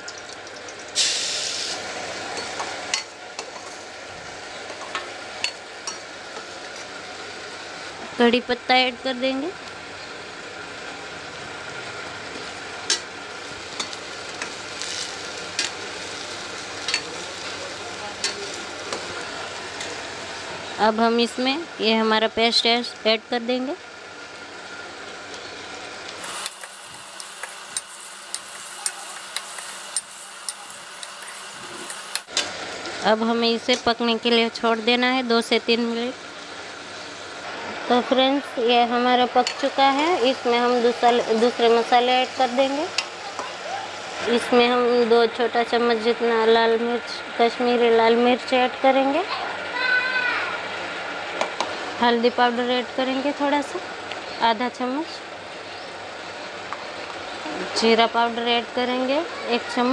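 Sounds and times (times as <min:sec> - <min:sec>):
paste sizzling in oil: 0:01.0 - 0:02.3, 0:13.3 - 0:20.2, 0:26.0 - 0:32.7.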